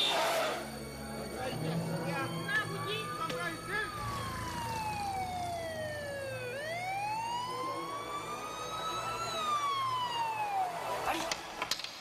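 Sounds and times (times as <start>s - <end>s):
emergency vehicle siren wailing: 0.4s - 11.5s.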